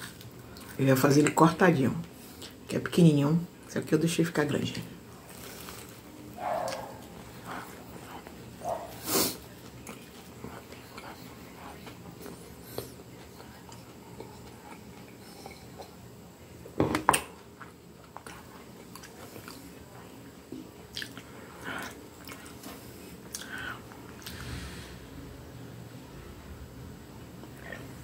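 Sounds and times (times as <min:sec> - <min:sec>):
chewing and mouth sounds: 0:05.4 - 0:16.0, 0:17.5 - 0:24.4.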